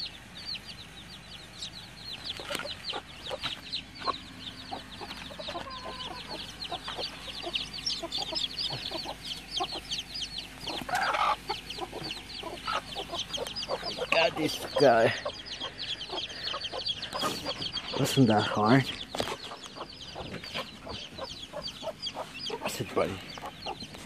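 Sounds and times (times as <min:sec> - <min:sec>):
chicks peeping: 0:00.0 - 0:24.0.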